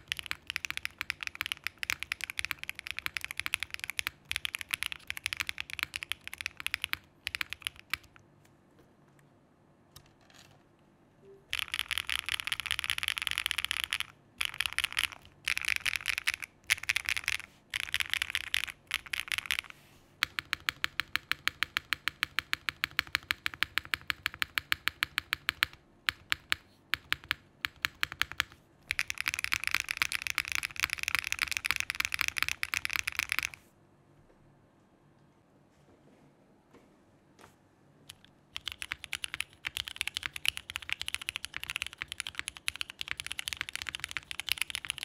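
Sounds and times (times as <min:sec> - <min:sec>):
mechanical keyboard clacking: 0:00.0 - 0:08.2, 0:11.5 - 0:33.6, 0:38.1 - 0:45.0.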